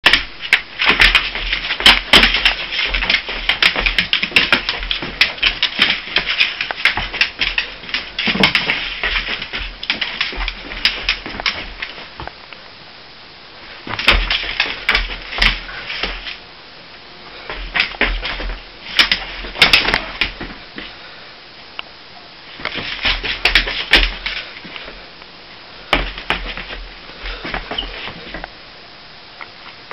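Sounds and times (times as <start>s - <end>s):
dog claws scrabbling on floor: 0.1s - 12.1s, 13.9s - 16.4s, 22.6s - 24.8s
dull thumps: 13.8s - 16.3s, 25.9s - 28.5s.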